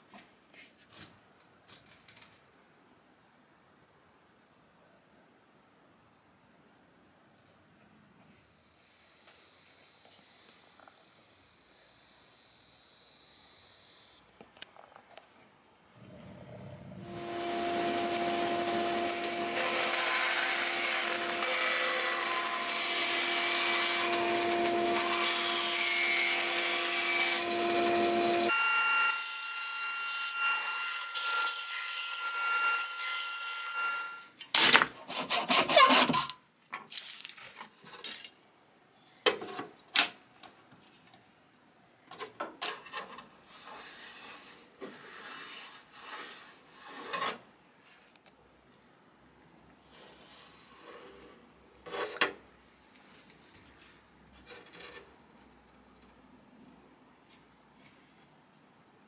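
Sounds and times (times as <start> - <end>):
bandsaw motor hum: 17.0 - 28.5
bandsaw cutting wood: 17.0 - 29.2.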